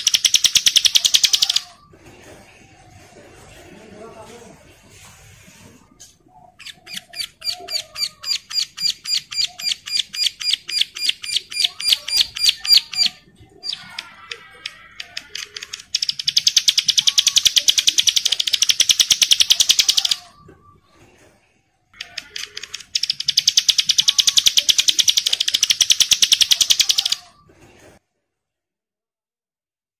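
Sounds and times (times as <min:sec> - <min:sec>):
bird calling with buzzy trills: 0:06.5 - 0:20.4, 0:22.0 - 0:27.3.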